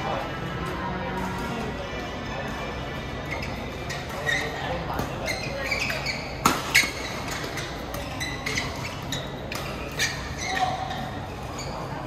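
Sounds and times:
hall background noise: 0.0 - 12.0
rackets hitting shuttlecock: 4.9 - 8.1, 9.5 - 10.1.

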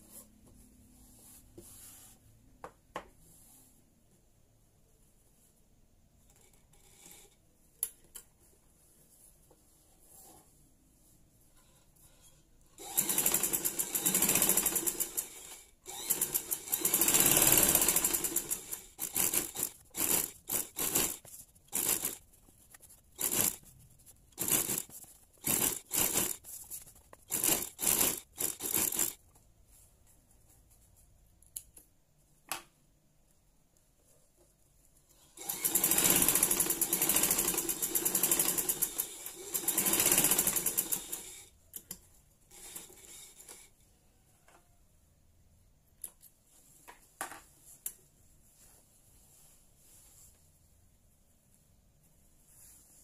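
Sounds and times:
sewing machine stitching: 12.8 - 22.2, 23.2 - 23.6, 24.3 - 26.4, 27.3 - 29.2, 35.2 - 41.5, 42.5 - 43.7.

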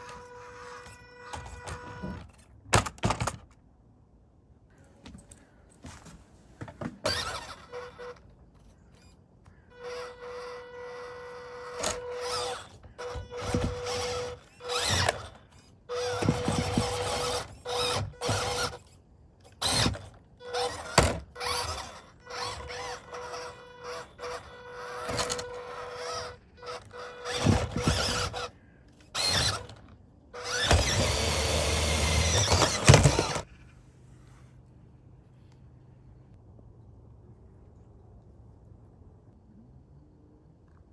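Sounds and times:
rc car motor whining: 0.0 - 2.4, 7.0 - 33.6.

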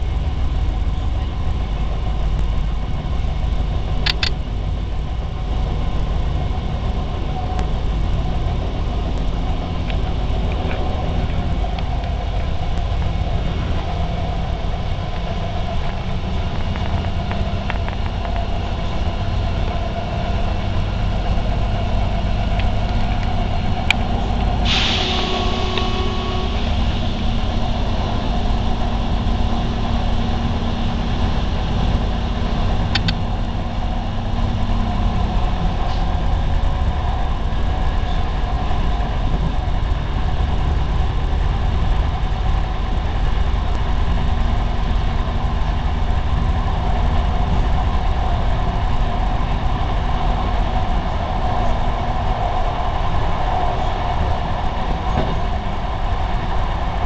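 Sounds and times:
railcar engine drone: 0.0 - 57.0
short hiss of air: 24.6 - 28.0.

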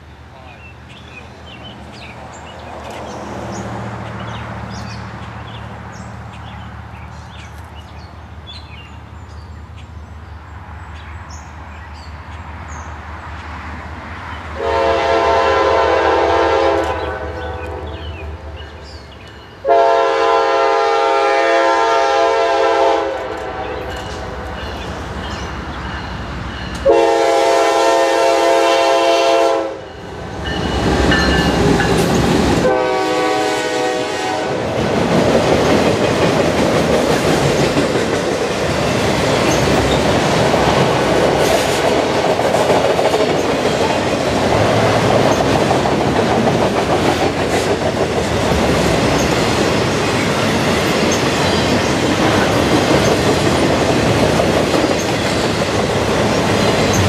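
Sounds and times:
train rumbling past: 0.0 - 57.0
train horn blasts: 14.6 - 18.0, 19.6 - 24.5, 26.8 - 30.0, 32.6 - 34.8
train wheels clattering on rails: 30.0 - 32.7, 34.6 - 57.0.

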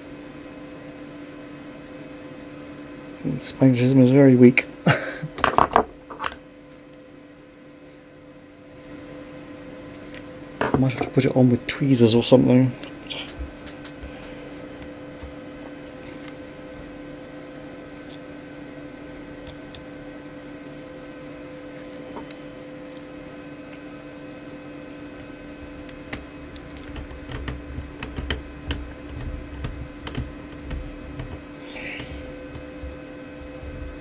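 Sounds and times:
steady background hum: 0.0 - 34.0
screwdriver clicking on laptop: 25.2 - 31.4.

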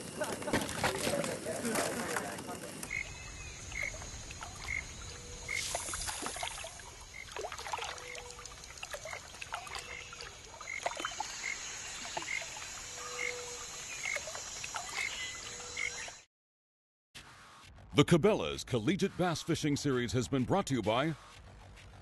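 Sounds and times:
water lapping and trickling: 0.1 - 16.0.

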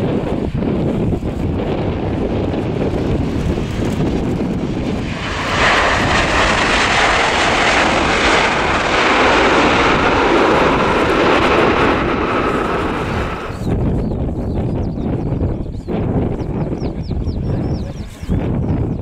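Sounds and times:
jet engines roaring on landing: 0.0 - 14.3.

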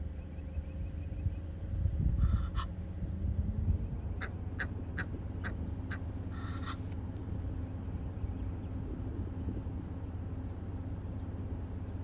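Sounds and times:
short sharp bird calls: 4.6 - 7.0.

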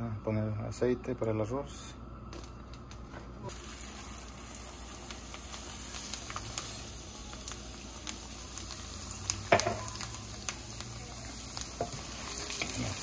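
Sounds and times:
hot oil sizzling: 3.4 - 13.0.

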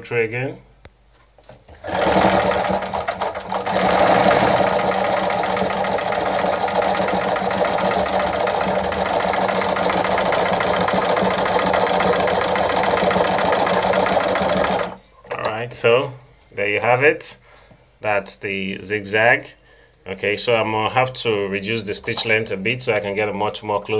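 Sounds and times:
sewing machine motor hum: 1.7 - 15.0
sewing machine needle clatter: 1.8 - 15.0.

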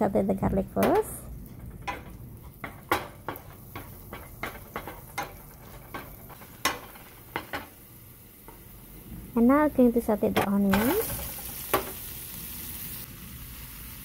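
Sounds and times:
butter sizzling: 0.8 - 14.0
wooden spatula scraping a pan: 1.4 - 7.7.

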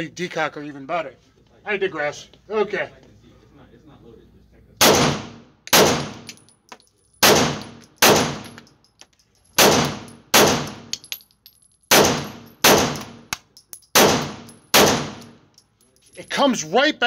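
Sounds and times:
pistol shots echoing indoors: 4.8 - 6.4, 7.2 - 8.6, 9.6 - 10.9, 11.9 - 13.3, 13.9 - 15.4.

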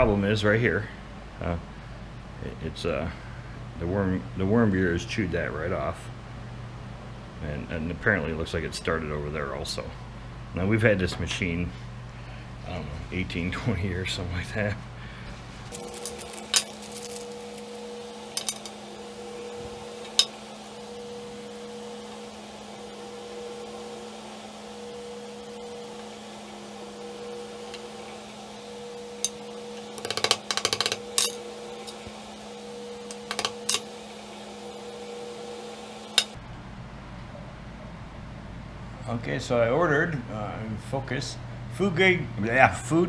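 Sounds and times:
steady low hum: 0.0 - 43.0
metal parts clicking and clinking: 15.7 - 17.7, 18.3 - 18.8, 30.0 - 32.0, 33.1 - 33.8.

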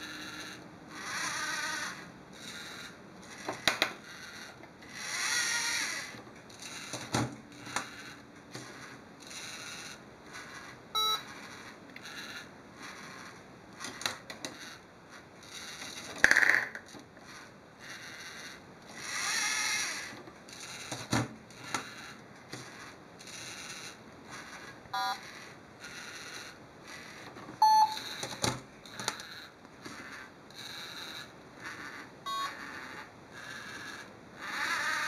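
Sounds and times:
short electronic beep: 11.0 - 11.2, 25.0 - 25.2, 27.6 - 28.0, 32.3 - 32.6
servo motors whirring: 17.2 - 21.0.

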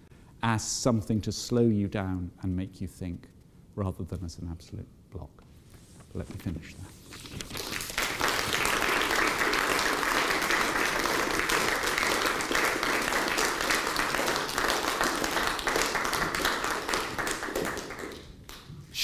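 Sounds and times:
audience applauding: 7.5 - 18.7.

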